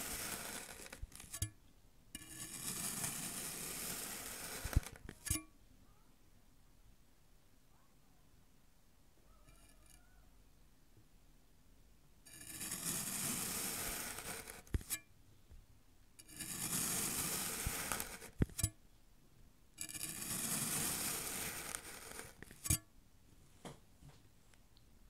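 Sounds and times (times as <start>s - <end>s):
knife slicing through sand: 12.6s - 14.7s, 16.4s - 18.3s, 20.1s - 22.8s.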